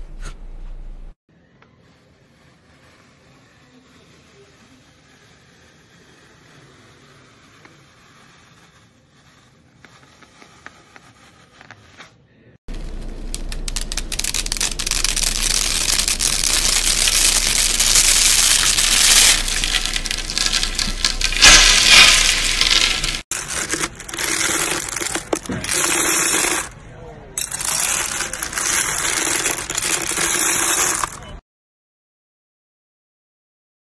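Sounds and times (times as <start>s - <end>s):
choppy crackling: 12.7s - 26.7s
dry spaghetti strands snapping: 13.2s - 23.2s.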